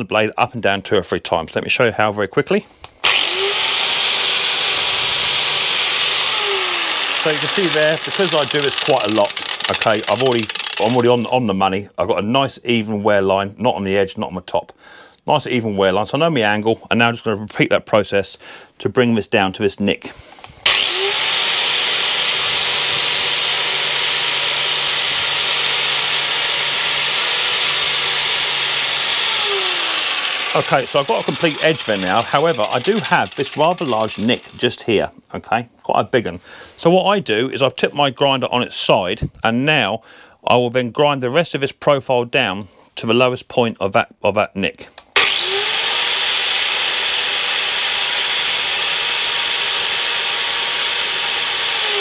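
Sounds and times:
angle grinder grinding steel: 3.0 - 11.3, 20.3 - 35.0, 45.2 - 52.0.

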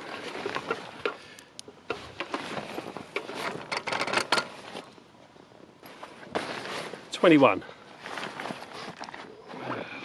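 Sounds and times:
rustling: 1.9 - 5.0, 5.8 - 9.9.

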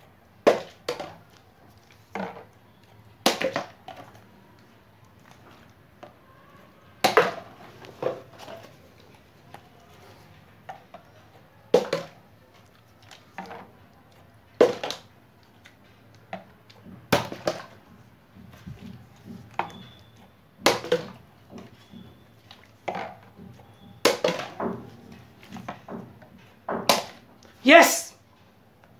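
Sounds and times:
plastic bottle knocking hollowly: 0.4 - 1.2, 3.2 - 4.1, 7.0 - 8.7, 11.7 - 12.2, 14.6 - 15.1, 16.3 - 27.3
bottle clattering bounces: 11.7 - 12.2, 14.6 - 15.1, 18.4 - 27.3.

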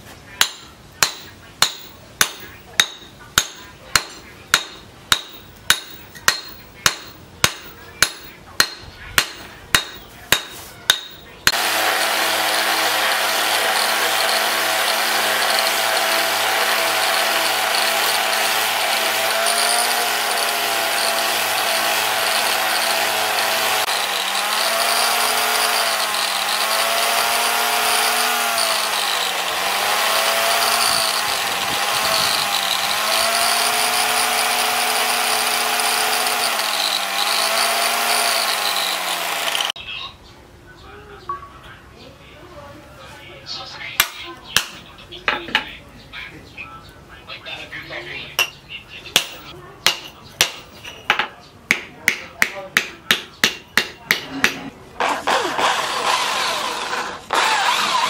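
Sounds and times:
hammer blows on anvil: 0.4 - 11.7
angle grinder sanding: 10.5 - 39.8, 55.0 - 58.0.

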